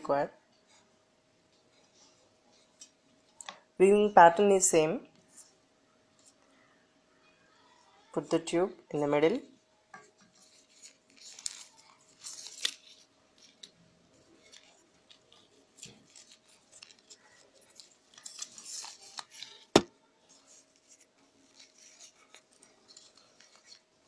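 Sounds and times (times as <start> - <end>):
newspaper tubes rustling: 10.2 - 24.0.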